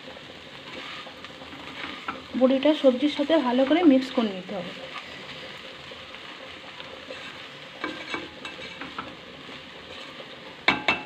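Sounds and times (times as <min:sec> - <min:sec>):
low sizzle: 0:00.0 - 0:11.0
spatula scraping a pan: 0:00.5 - 0:11.0.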